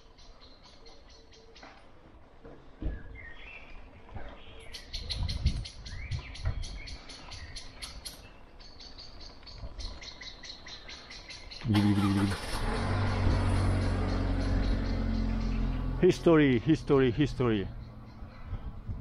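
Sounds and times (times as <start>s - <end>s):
bird chirping: 0.0s - 1.9s, 2.8s - 19.0s
motor vehicle engine hum: 11.6s - 19.0s.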